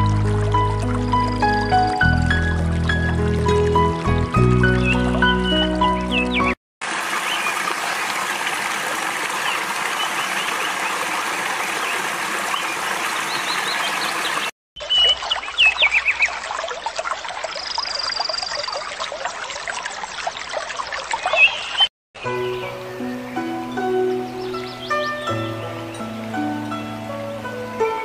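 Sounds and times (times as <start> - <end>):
stream water running: 0.0 - 28.0
small birds chirping: 4.6 - 6.6, 9.3 - 16.4, 17.4 - 19.0, 19.9 - 26.1.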